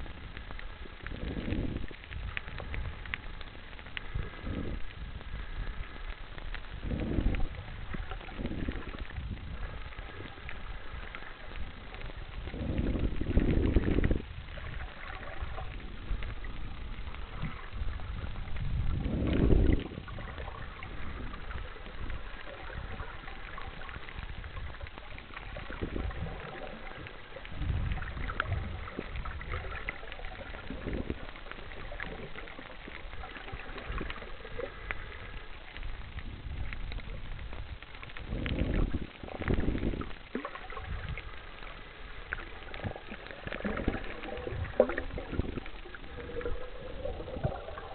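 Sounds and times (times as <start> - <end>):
low whooshes of water: 0.0 - 47.9
muffled underwater wash: 0.0 - 47.9.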